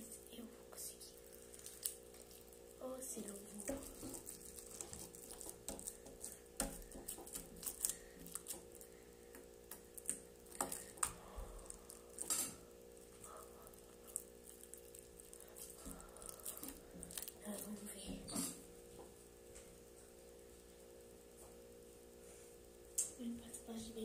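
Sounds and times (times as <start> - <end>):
slime kneaded by hand: 1.2 - 12.4, 13.0 - 18.1.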